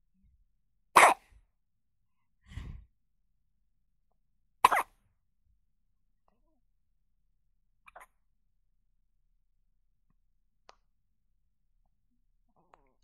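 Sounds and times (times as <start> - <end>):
baby hiccuping: 1.0 - 1.2, 4.6 - 4.9.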